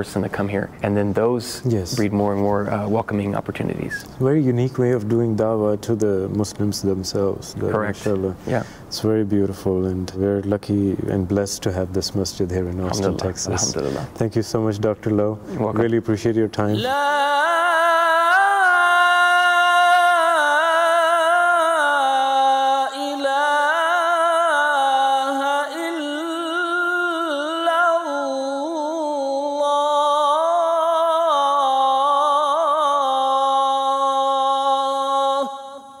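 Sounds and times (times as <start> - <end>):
person chanting: 16.7 - 36.0.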